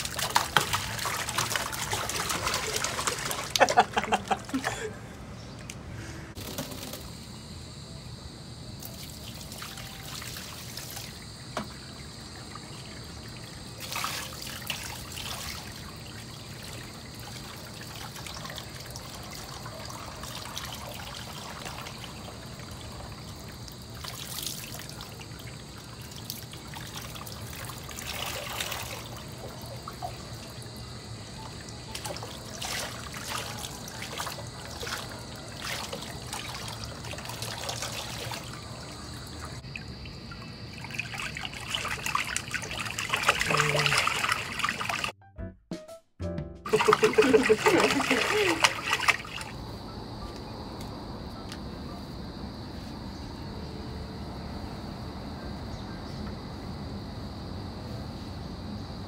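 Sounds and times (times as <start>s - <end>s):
bath water trickling: 0.0s - 4.8s, 8.8s - 45.2s, 46.7s - 49.6s
water splashing: 0.0s - 4.8s, 8.8s - 45.2s, 46.7s - 49.6s.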